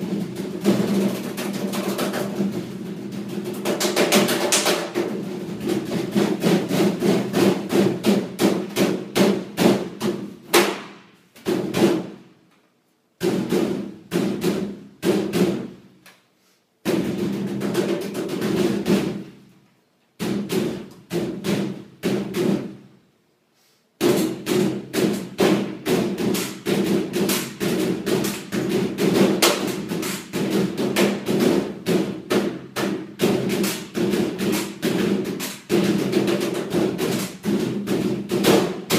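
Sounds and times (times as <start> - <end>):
hands drumming on metal cabinet: 0.0 - 10.8, 24.0 - 38.9.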